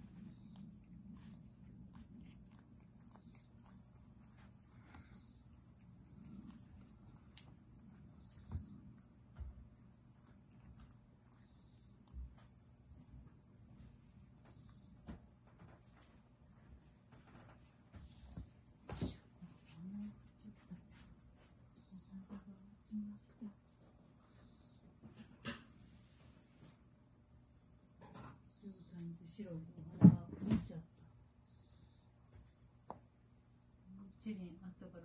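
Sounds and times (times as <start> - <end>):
insect chorus trilling: 0.0 - 19.2, 26.9 - 35.0.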